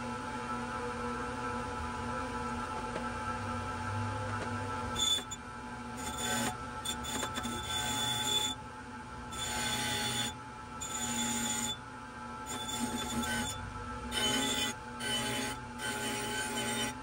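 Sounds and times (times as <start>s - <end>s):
grinder motor whine: 2.8s - 8.6s, 12.4s - 17.0s.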